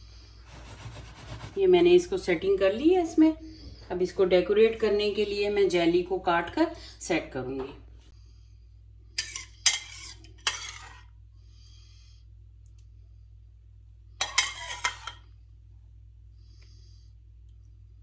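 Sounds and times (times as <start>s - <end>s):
metal spoon clinking on dishes: 9.2s - 10.9s, 14.2s - 15.2s.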